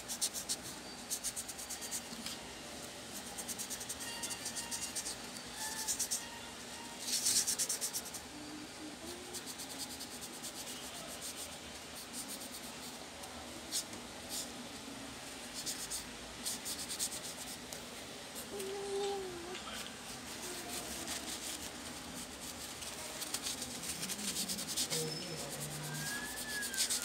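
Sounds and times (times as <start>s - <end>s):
tissue scrubbing metal heatsink: 20.0s - 27.0s.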